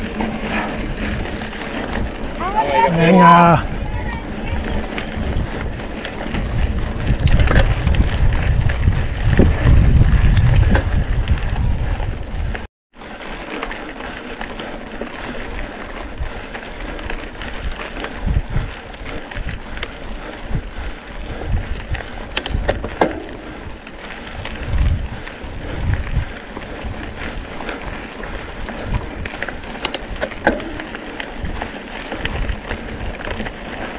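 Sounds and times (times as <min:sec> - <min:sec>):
wind rumble on microphone: 0:00.0 - 0:12.7, 0:15.4 - 0:33.9
bike rattling and knocking: 0:00.0 - 0:33.9
bike tyres crunching on gravel: 0:00.0 - 0:33.9.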